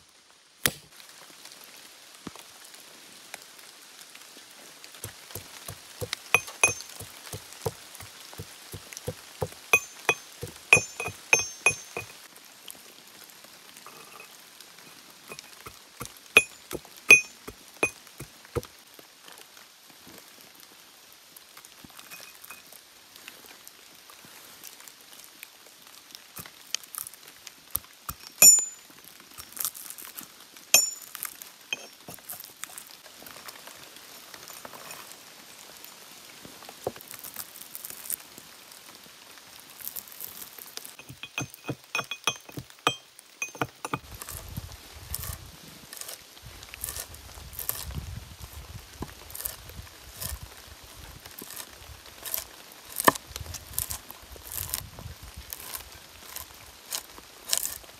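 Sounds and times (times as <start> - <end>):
pestle knocking metal mortar: 5.0 - 12.1, 15.3 - 18.0, 30.8 - 31.0, 31.8 - 32.4, 41.0 - 44.0
nuts crunching and grinding: 29.4 - 32.9, 43.6 - 48.0, 49.1 - 50.4, 51.3 - 57.9.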